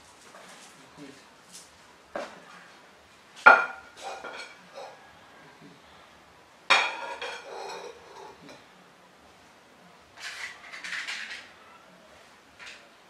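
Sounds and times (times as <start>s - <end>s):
bowl and utensil clinking: 6.7s - 8.6s, 10.2s - 11.6s.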